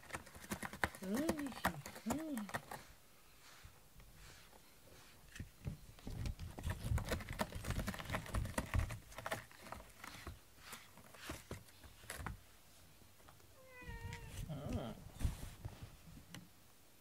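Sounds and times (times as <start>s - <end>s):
cat claws scratching cardboard: 0.0s - 2.9s, 6.2s - 12.4s.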